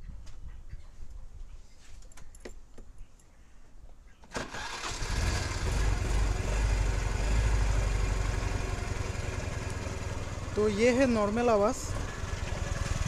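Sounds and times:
scooter engine starting and idling: 4.3s - 13.0s.

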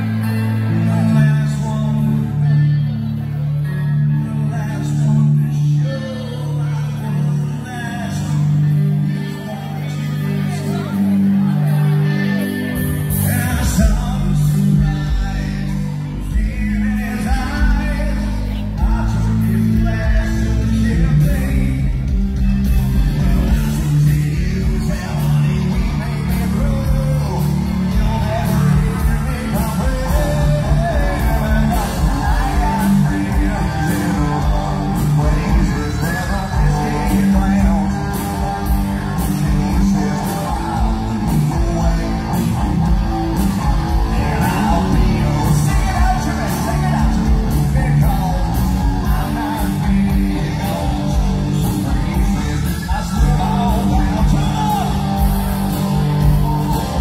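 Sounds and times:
bass guitar: 0.0s - 57.0s
drums: 0.0s - 57.0s
electric guitars: 0.0s - 57.0s
person singing: 0.0s - 57.0s
audience yelling: 22.6s - 57.0s.

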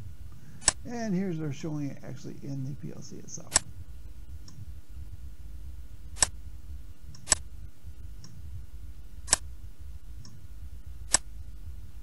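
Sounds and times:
low microphone hum: 0.0s - 12.0s
computer mouse clicks: 7.1s - 7.4s, 11.1s - 11.3s.

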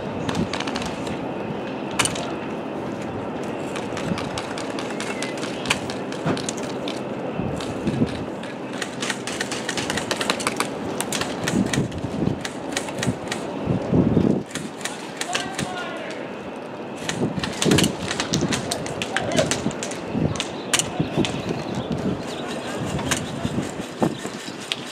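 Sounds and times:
outdoor background noise: 0.0s - 24.9s
airsoft guns firing: 14.5s - 16.0s.

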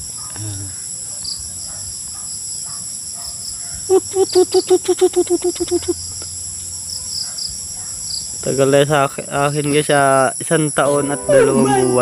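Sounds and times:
high-pitched insect chorus: 0.0s - 12.0s
dove hooting: 3.8s - 6.2s.

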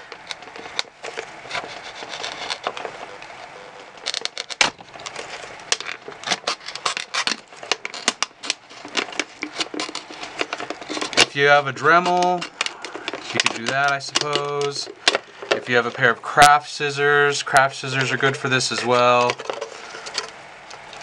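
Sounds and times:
knife cutting plastic bottle: 5.8s - 16.0s.

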